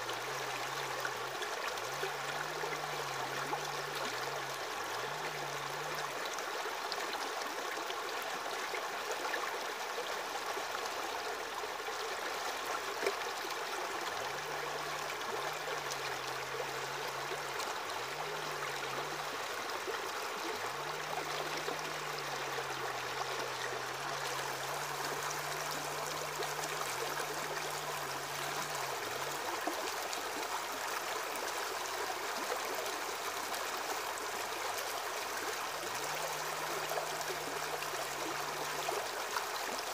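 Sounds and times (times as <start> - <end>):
aquarium water trickling: 10.6 - 39.9.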